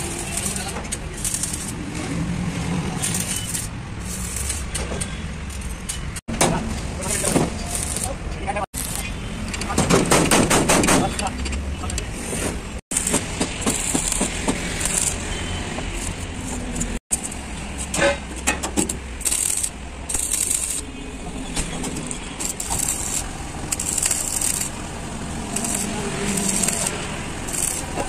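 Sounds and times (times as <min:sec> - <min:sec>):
welding arc crackling and hissing: 0:00.0 - 0:04.8, 0:06.9 - 0:09.4, 0:12.9 - 0:18.0, 0:18.9 - 0:21.0, 0:21.9 - 0:28.0.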